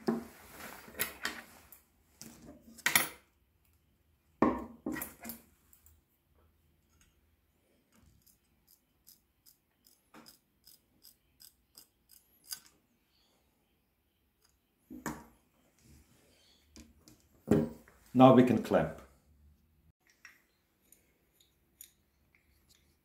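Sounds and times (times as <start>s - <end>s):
knocks and rustles of handling: 16.7s - 18.1s.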